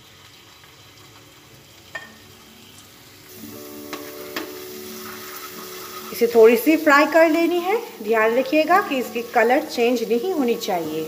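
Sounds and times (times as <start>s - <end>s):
food sizzling in hot oil: 0.0s - 11.0s
background music: 2.0s - 11.0s
spatula tapping pan: 3.8s - 6.2s.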